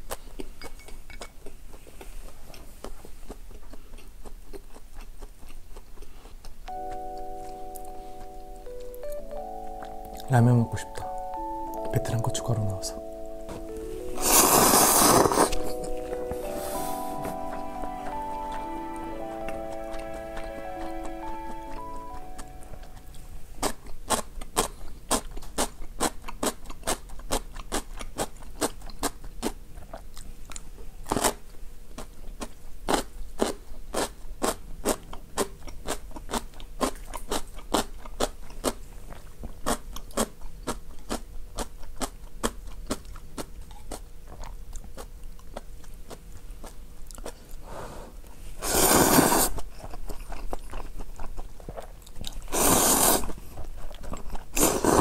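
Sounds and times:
wet chewing and crunching: 0.0s - 7.0s, 23.6s - 47.6s, 49.4s - 55.0s
slurping noodles: 14.3s - 15.7s, 47.7s - 49.6s, 52.5s - 53.4s, 54.5s - 55.0s.

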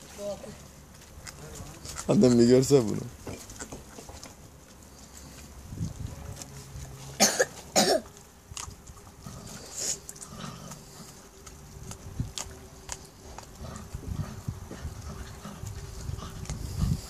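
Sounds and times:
puppies chewing and tearing: 0.0s - 17.0s
loud coughs: 7.2s - 8.1s.

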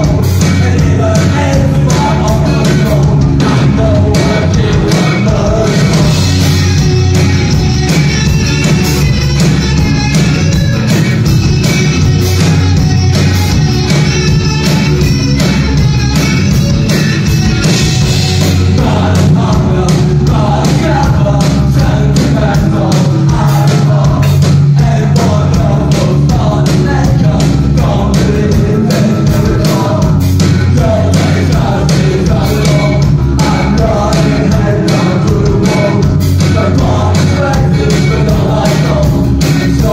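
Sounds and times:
man singing: 0.0s - 6.6s, 17.9s - 39.9s
drums and cymbals: 0.0s - 39.9s
electric guitars: 0.0s - 39.9s.

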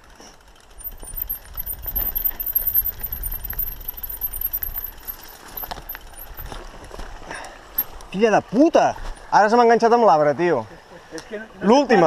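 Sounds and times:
bike clicks and rattles: 0.0s - 8.2s
bike tyres on rocky trail: 0.0s - 9.6s.

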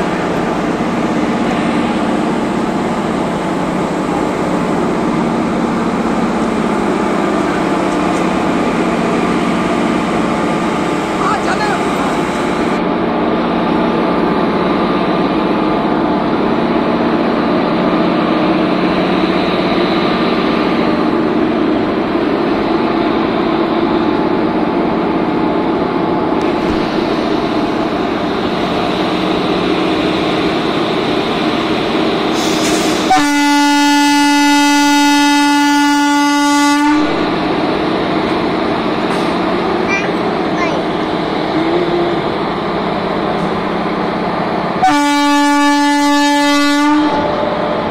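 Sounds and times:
train engine running: 0.0s - 47.9s
train air horn: 32.4s - 37.2s, 44.8s - 47.4s.

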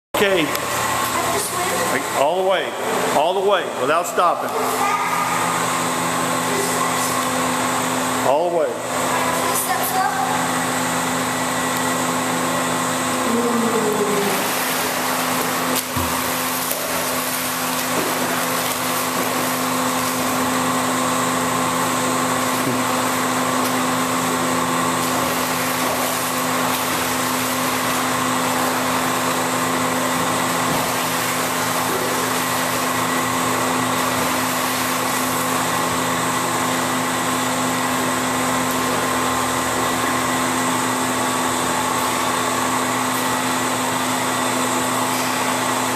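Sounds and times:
machinery drone: 12.5s - 20.8s.

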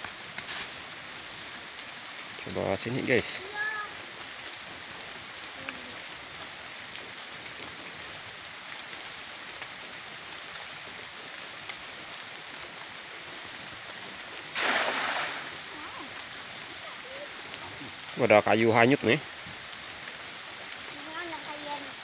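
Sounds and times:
drizzle hissing over river: 0.0s - 22.0s
net splashing into water: 14.5s - 15.8s.

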